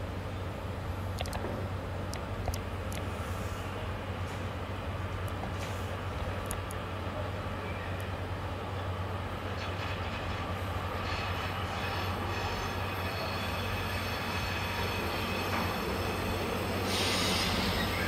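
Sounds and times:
train rumbling over tracks: 0.0s - 18.0s
high wheel squeals: 11.0s - 18.0s.

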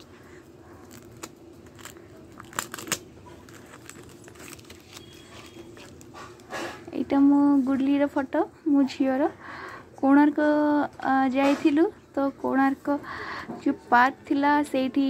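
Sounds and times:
plastic sleeves crinkling: 0.7s - 6.9s.

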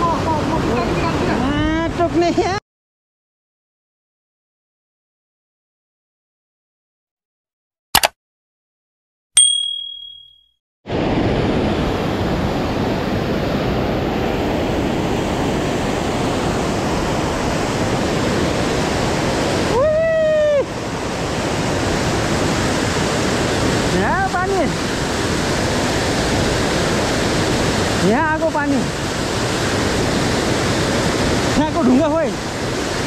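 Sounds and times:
click: 8.0s - 8.2s
short ringing chime: 9.4s - 10.5s
river rushing through rapids: 13.7s - 33.0s.

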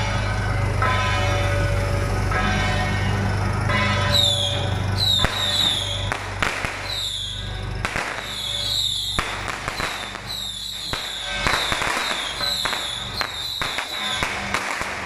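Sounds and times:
high wavering tone: 0.0s - 6.2s
firecrackers crackling and popping: 3.7s - 15.0s.

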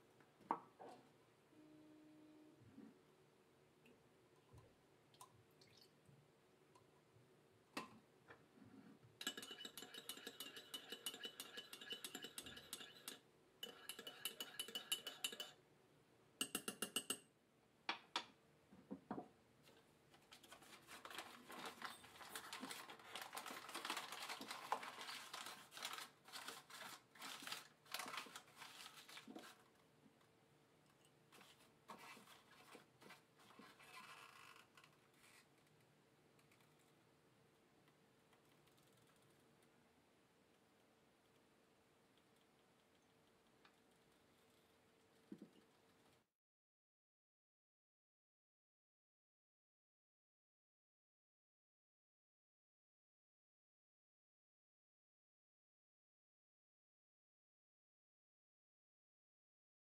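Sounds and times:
spoon clinking in ceramic mug: 9.2s - 15.6s, 16.4s - 17.2s
spoon scraping against mug: 9.2s - 15.6s, 16.4s - 17.2s.

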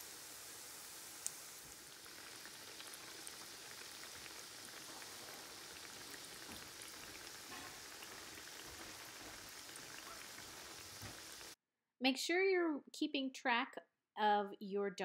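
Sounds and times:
oil sizzling and popping: 0.0s - 11.6s.

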